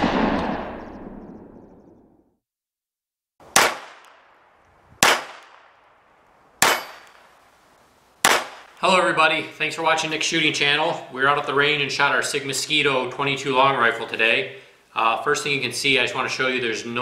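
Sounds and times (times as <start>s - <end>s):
echoing bang tail: 0.0s - 2.0s
pistol shots with echo: 3.6s - 4.4s, 5.0s - 5.8s, 6.6s - 7.2s, 8.2s - 8.8s.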